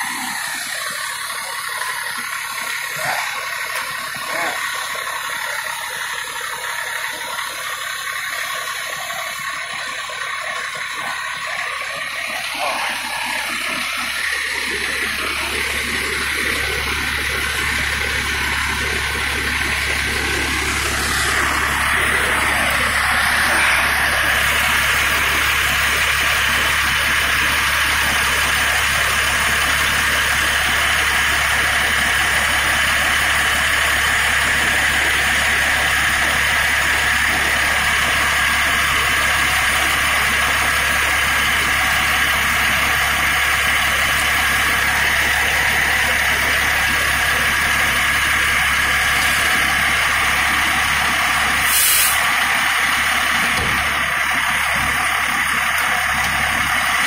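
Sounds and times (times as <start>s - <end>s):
diesel engine idling: 0.0s - 57.0s
air hiss: 51.6s - 52.3s.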